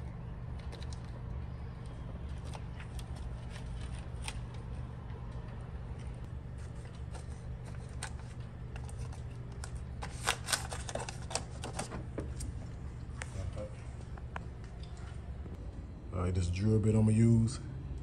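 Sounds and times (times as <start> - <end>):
steady low hum: 0.0 - 18.0
tape crinkling: 0.6 - 5.5, 6.5 - 11.9.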